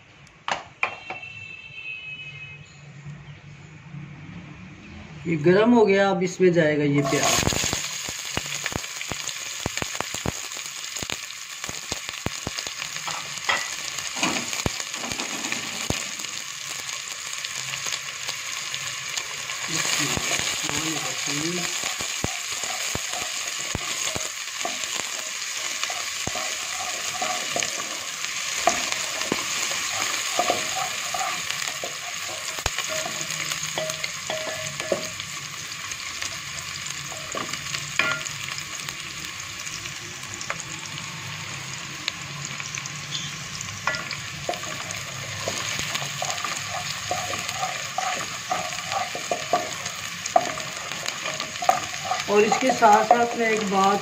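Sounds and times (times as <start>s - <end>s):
onions sizzling in a pot: 5.8s - 54.0s
wooden spoon scraping a pot: 21.7s - 35.1s, 43.9s - 53.3s.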